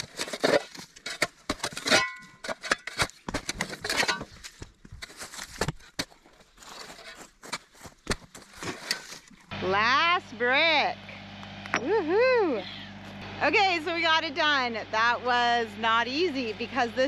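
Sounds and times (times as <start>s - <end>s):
digging out bricks and soil: 0.0s - 9.8s.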